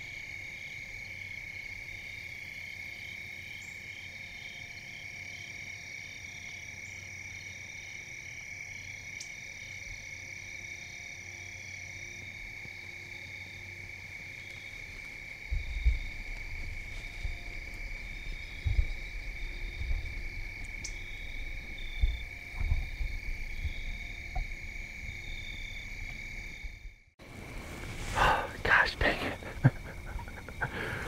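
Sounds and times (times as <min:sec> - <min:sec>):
insects droning: 0:00.0 - 0:31.0
pulsing insect call: 0:00.0 - 0:31.0
loud low thump and rumble: 0:15.5 - 0:27.0.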